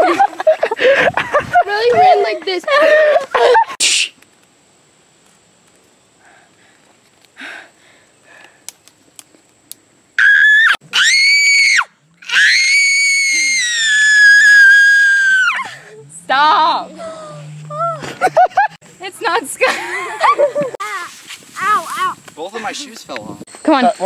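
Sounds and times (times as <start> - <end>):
young person screaming: 10.2 - 15.8.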